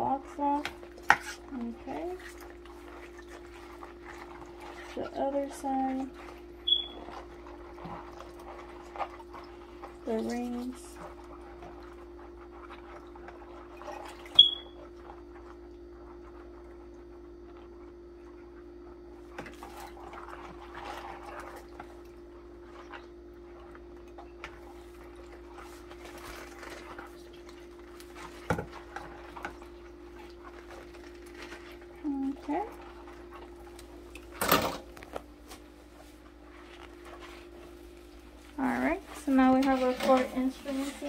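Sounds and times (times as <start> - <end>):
sponge scrubbing scissors in water: 0.0 - 17.6, 19.3 - 34.4, 36.0 - 41.0
high squeak: 6.7 - 7.0.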